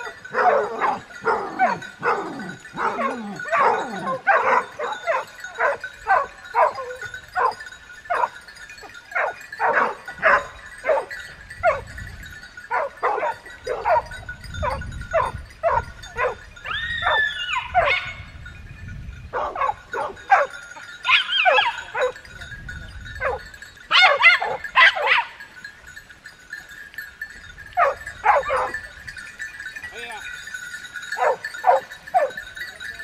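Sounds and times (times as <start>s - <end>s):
dog howling: 0.0s - 7.0s, 15.7s - 18.1s
dogs barking and yelping: 0.0s - 18.4s, 19.3s - 22.3s, 23.1s - 25.6s, 27.7s - 29.7s, 30.3s - 33.0s.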